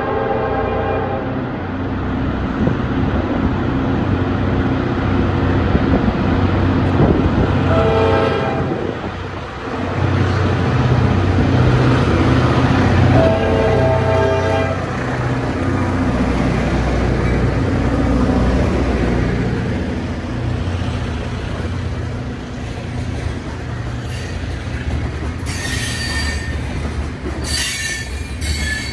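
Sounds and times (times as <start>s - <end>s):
locomotive air horn blasts: 0.0s - 1.4s, 7.6s - 8.9s, 13.0s - 15.0s
diesel engines rumbling: 0.6s - 28.9s.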